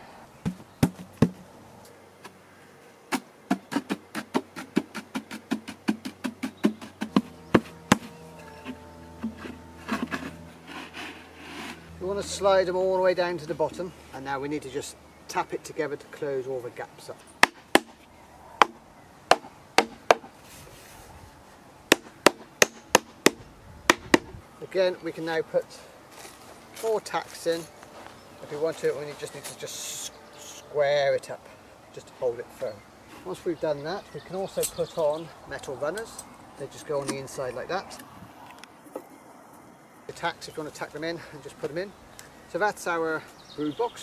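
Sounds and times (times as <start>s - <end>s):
hammer knocking wooden boards: 18.6s - 20.3s.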